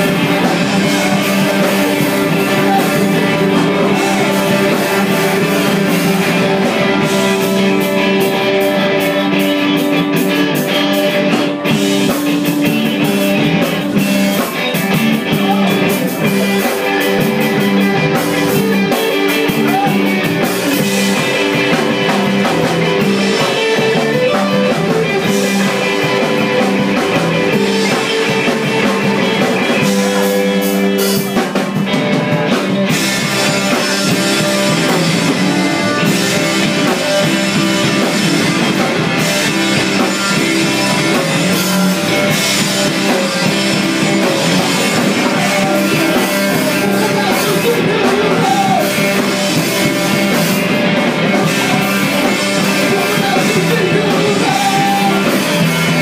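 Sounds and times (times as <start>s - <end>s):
person singing: 0.0s - 10.9s, 14.3s - 30.5s, 44.3s - 49.6s, 51.2s - 56.0s
bass guitar: 0.0s - 56.0s
distorted electric guitars: 0.0s - 56.0s
drum kit: 0.0s - 56.0s.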